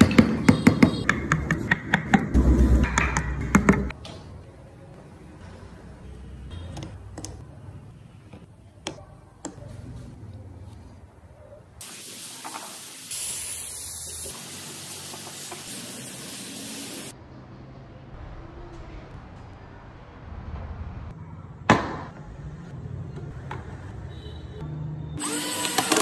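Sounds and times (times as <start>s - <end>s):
compressed air spray gun hissing: 11.9s - 17.1s.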